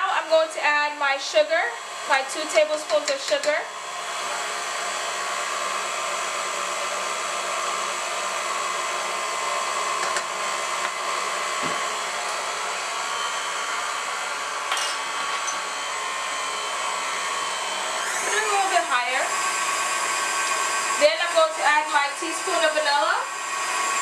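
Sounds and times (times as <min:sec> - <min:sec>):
stand mixer motor whirring: 0:00.0 - 0:24.0
whisk beating cream: 0:01.1 - 0:09.1, 0:15.0 - 0:24.0.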